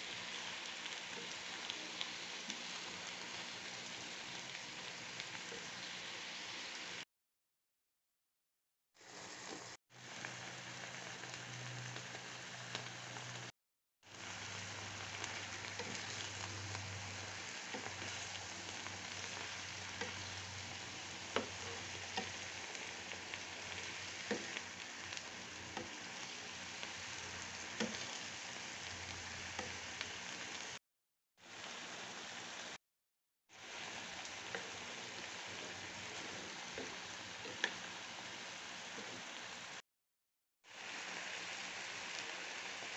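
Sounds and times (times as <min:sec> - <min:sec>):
vegetables sizzling in a wok: 0:00.0 - 0:07.0, 0:09.0 - 0:30.8, 0:31.4 - 0:32.8, 0:33.5 - 0:39.8, 0:40.6 - 0:42.9
wooden spatula stirring: 0:17.6 - 0:20.3.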